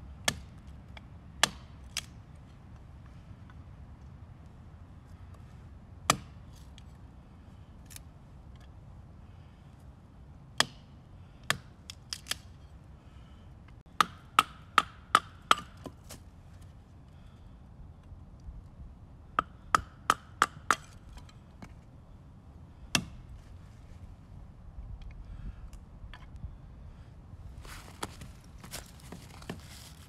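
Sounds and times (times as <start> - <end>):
knife chopping wood: 0.2 - 0.6, 1.4 - 2.1, 6.1 - 6.4, 14.0 - 16.2, 22.9 - 23.2.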